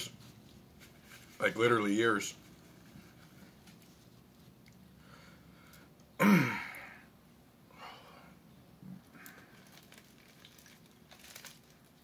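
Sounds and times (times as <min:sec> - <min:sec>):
foil wrapper rustling: 0:09.2 - 0:12.0.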